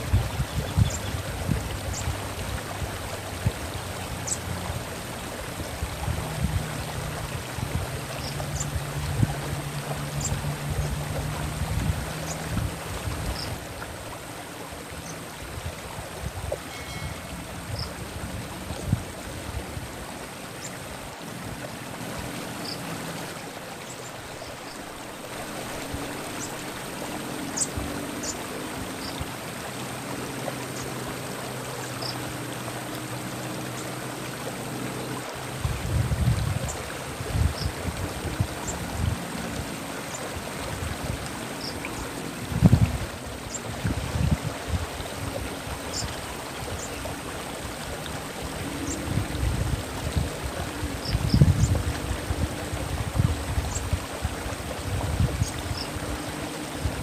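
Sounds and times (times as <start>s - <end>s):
stream water rushing: 0.0s - 57.0s
faint high chirps: 16.7s - 17.9s.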